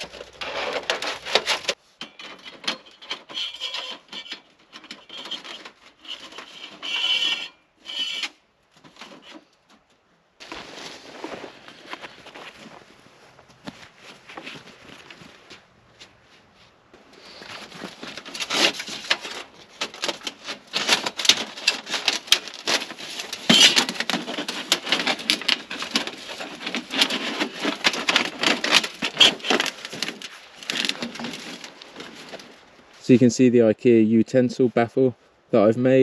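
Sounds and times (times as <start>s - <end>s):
canvas fabric rustling: 10.4s - 16.6s.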